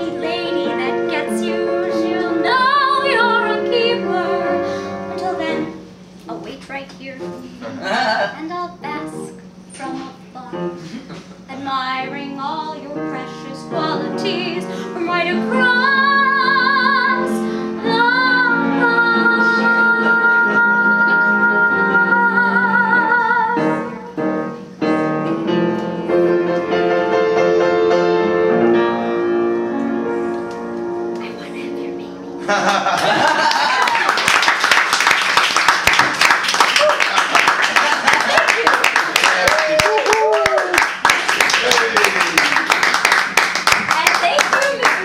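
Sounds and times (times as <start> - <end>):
woman singing with vibrato: 0.0 - 5.8, 11.5 - 24.1
piano chords: 0.0 - 45.0.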